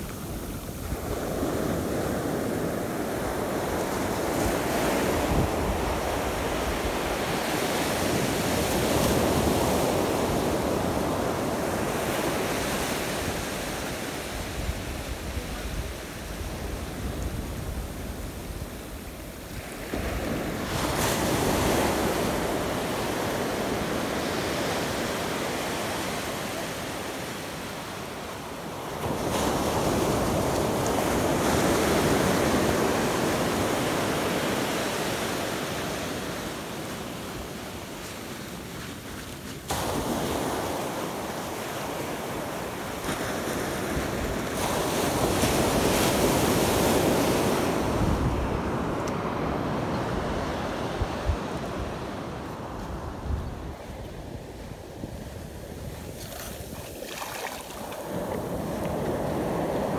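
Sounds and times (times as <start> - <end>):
ocean surf breaking: 0.0 - 59.9
wind buffeting microphone: 43.0 - 59.9.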